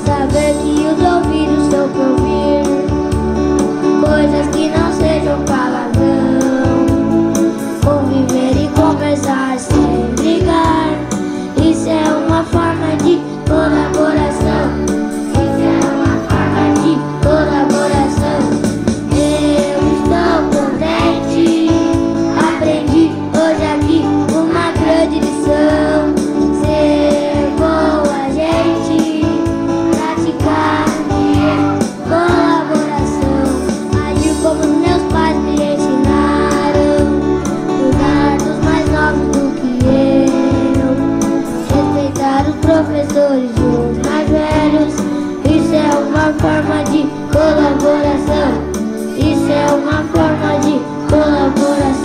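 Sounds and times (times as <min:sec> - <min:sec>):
woman singing: 0:00.0 - 0:02.9, 0:03.9 - 0:52.0
instrumental accompaniment: 0:00.0 - 0:52.0
children singing: 0:11.6 - 0:41.1, 0:49.2 - 0:52.0.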